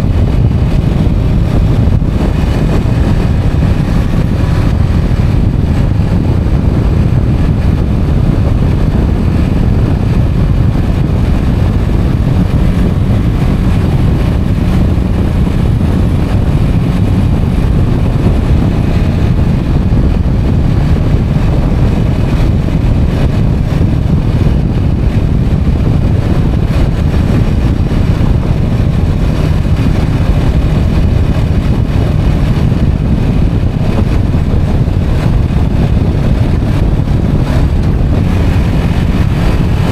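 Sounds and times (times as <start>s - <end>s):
motorcycle engine and tyre noise: 0.0s - 39.9s
wind buffeting microphone: 0.0s - 39.9s.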